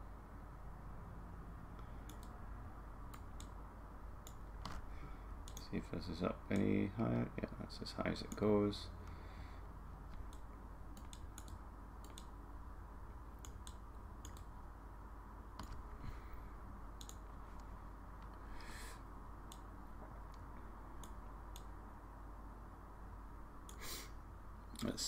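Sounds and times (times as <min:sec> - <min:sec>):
steady low hum: 0:00.0 - 0:25.0
computer mouse clicks: 0:01.8 - 0:02.4, 0:03.1 - 0:03.6, 0:04.2 - 0:04.8, 0:05.4 - 0:05.8, 0:10.1 - 0:12.4, 0:13.4 - 0:14.6, 0:15.6 - 0:15.9, 0:17.0 - 0:18.7, 0:19.4 - 0:19.7, 0:20.3 - 0:21.8.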